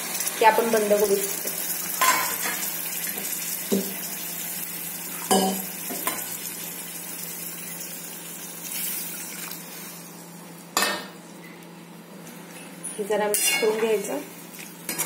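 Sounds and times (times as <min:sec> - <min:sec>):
food sizzling in hot oil: 0:00.0 - 0:10.4
metal clink on pan: 0:13.3 - 0:13.7.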